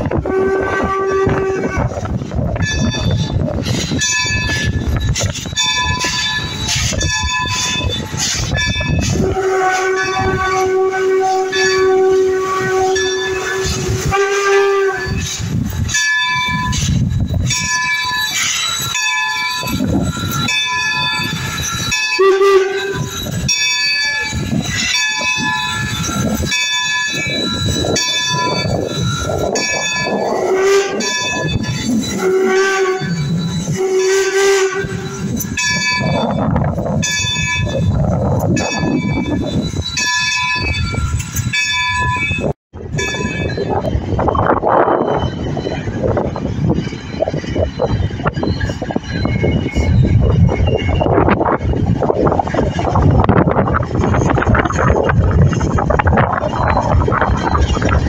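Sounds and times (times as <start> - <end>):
steam locomotive whistle: 0.0 - 2.1, 5.8 - 36.4
bell ringing: 15.1 - 30.4, 31.0 - 32.2, 37.0 - 51.1.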